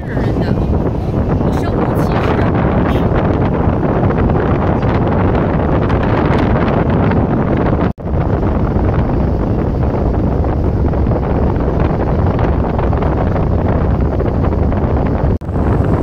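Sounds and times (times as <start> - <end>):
strong wind buffeting microphone: 0.0 - 16.0.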